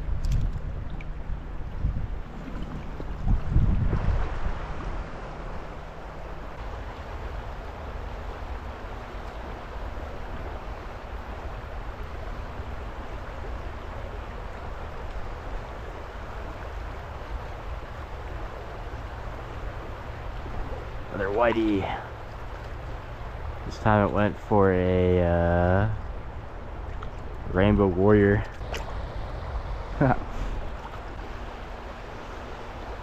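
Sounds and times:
river current rushing: 1.3s - 33.0s.

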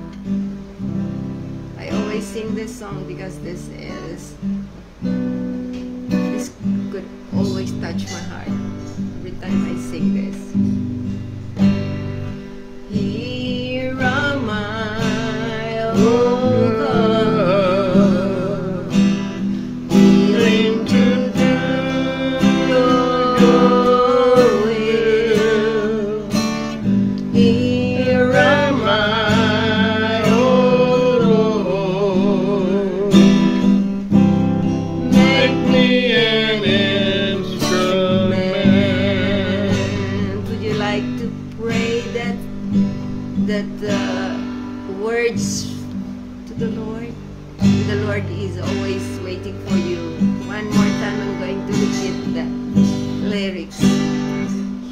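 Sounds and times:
strummed acoustic guitar: 0.0s - 54.9s
woman singing with vibrato: 12.8s - 26.6s, 27.2s - 33.5s, 34.1s - 45.9s, 46.5s - 54.5s.

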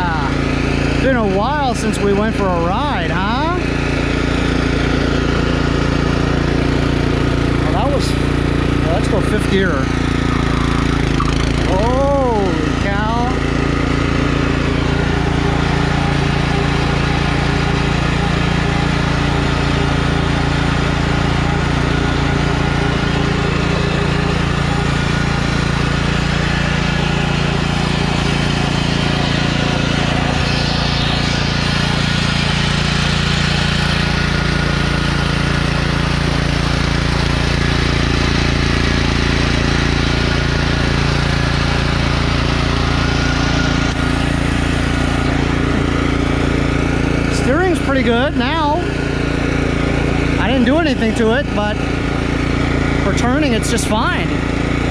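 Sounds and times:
lawn tractor engine running: 0.0s - 54.9s.

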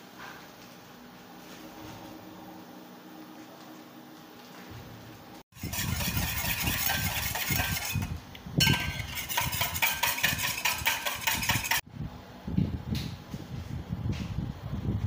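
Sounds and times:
wire whisk clattering in metal bowl: 5.6s - 11.8s.

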